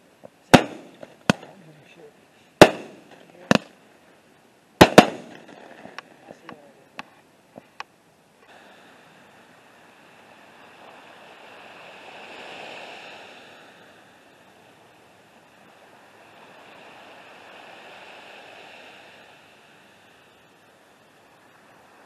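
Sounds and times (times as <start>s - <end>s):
small waves washing on shore: 8.5s - 22.0s.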